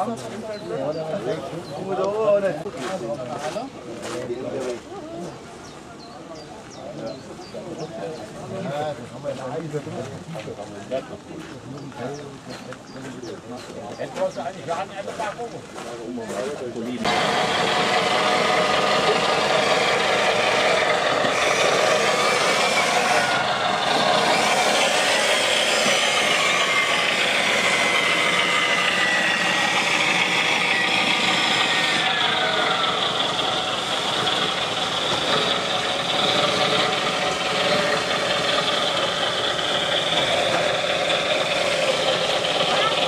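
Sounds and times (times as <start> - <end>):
motor whine: 17.0 - 43.0
rc truck motor running: 17.0 - 43.0.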